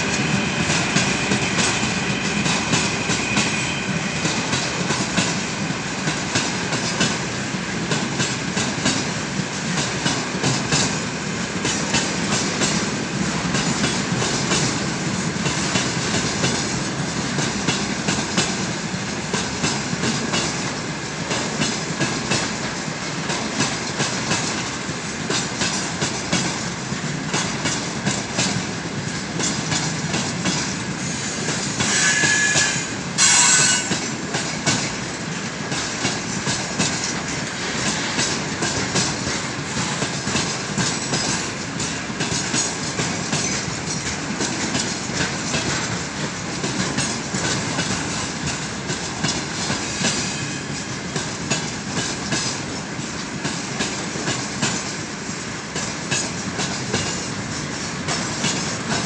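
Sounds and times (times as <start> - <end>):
freight train wheels clattering: 0.0 - 59.0
high-pitched wheel squeal: 31.1 - 34.0.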